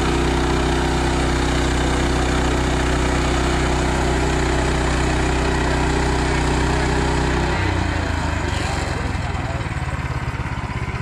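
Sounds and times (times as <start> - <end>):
gas engine running: 0.0 - 11.0.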